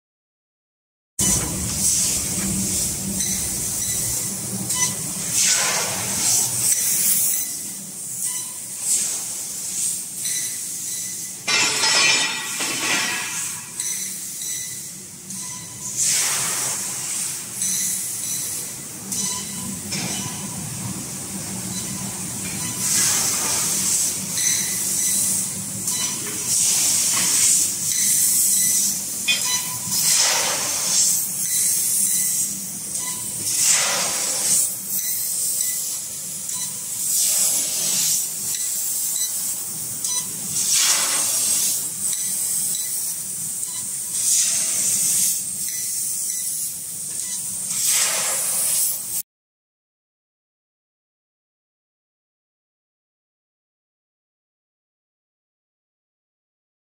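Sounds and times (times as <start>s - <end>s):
low machine hum: 1.2s - 5.4s
gas bursts from laser cutter: 1.2s - 14.8s, 15.8s - 20.3s, 22.6s - 49.2s.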